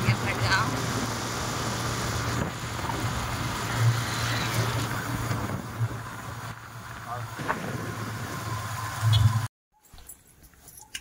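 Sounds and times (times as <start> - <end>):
wind noise on microphone: 0.0 - 6.6.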